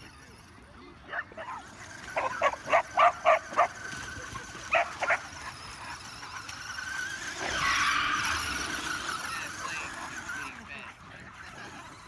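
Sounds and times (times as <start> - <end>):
toy car electric motor whine: 0.0 - 12.0
dog barking: 2.2 - 3.7.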